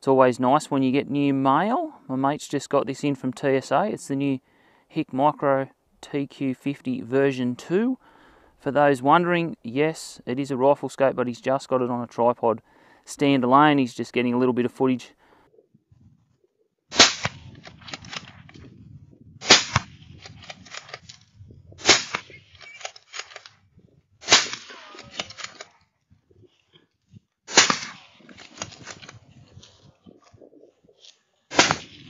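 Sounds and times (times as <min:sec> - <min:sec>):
rifle shots echoing: 0:16.9 - 0:18.3, 0:19.4 - 0:21.0, 0:21.8 - 0:23.4, 0:24.2 - 0:25.7, 0:27.5 - 0:29.2, 0:31.5 - 0:32.0.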